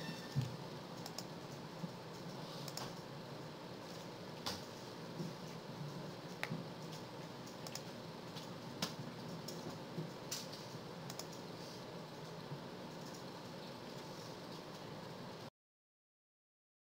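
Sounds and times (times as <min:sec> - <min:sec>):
low room hum: 0:00.0 - 0:15.5
keyboard and mouse clicks: 0:00.4 - 0:03.0, 0:06.2 - 0:11.5.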